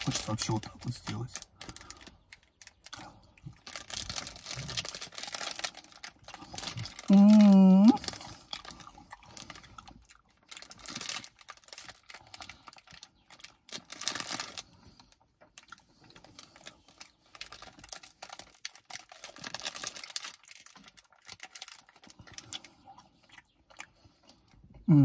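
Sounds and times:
man eating mouth sounds: 0:06.7 - 0:10.2, 0:22.2 - 0:25.0.

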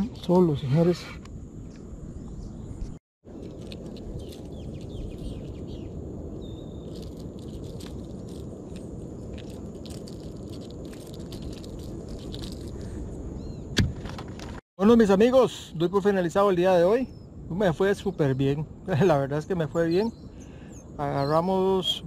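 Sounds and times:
insect drone: 0:00.0 - 0:13.7
bird chirp: 0:00.6 - 0:07.2, 0:13.3 - 0:13.8, 0:15.4 - 0:22.0.

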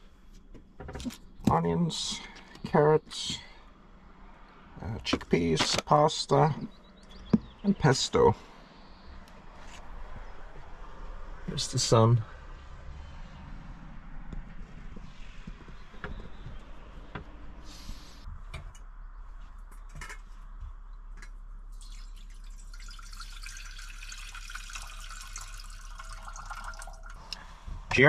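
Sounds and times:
water running from tap: 0:21.8 - 0:27.2.

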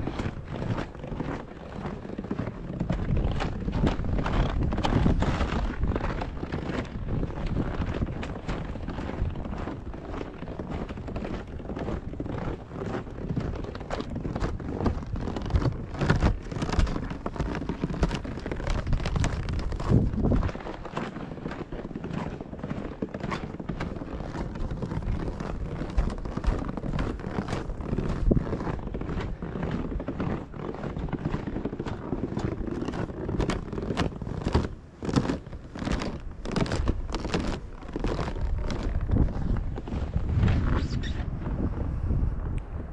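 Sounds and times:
wind buffeting microphone: 0:00.0 - 0:22.3, 0:24.2 - 0:34.2, 0:34.8 - 0:42.9
short crackles: 0:00.0 - 0:42.8
footsteps crunching in snow: 0:00.0 - 0:42.9.

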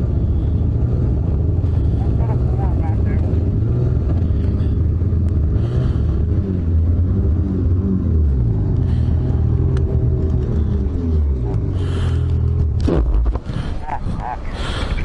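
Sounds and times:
snowmobile engine running slowly: 0:00.0 - 0:15.0.

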